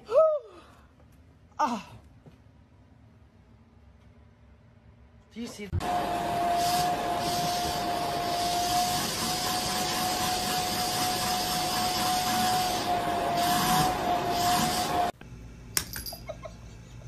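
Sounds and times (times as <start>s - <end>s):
vacuum cleaner running: 5.8s - 15.2s.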